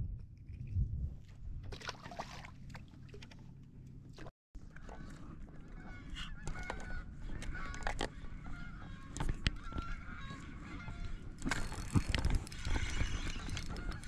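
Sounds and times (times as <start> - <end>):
birds honking calls: 5.7 - 11.5.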